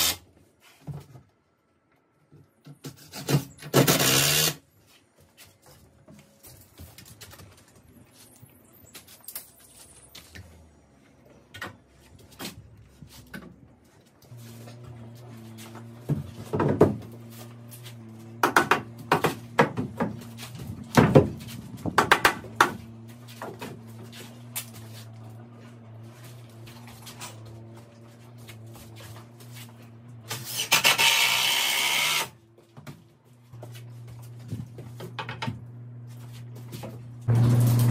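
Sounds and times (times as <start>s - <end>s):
cordless drill driving a screw: 3.8s - 4.6s, 30.5s - 32.3s.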